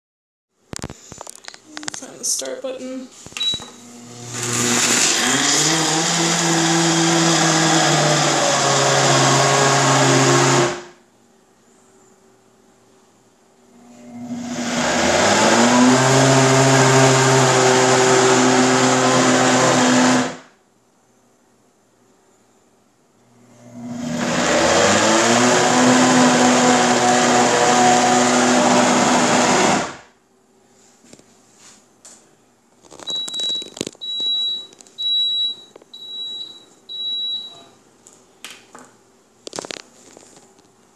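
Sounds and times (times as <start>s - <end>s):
blender crushing ice: 3.8s - 11.0s, 13.9s - 20.5s, 23.5s - 30.0s.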